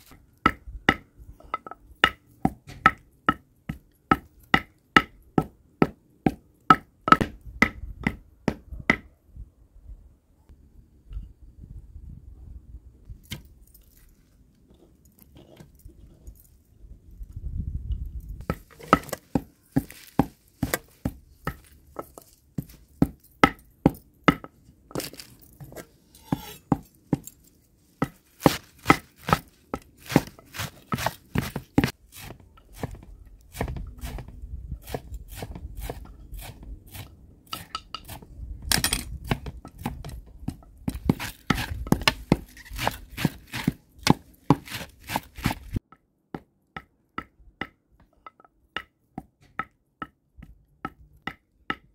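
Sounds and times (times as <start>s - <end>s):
knife chopping herbs: 18.4s - 25.3s, 28.0s - 45.8s.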